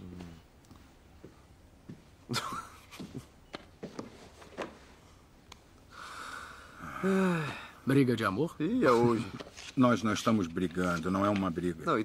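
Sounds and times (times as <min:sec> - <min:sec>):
soft footsteps walking: 0:00.2 - 0:05.1.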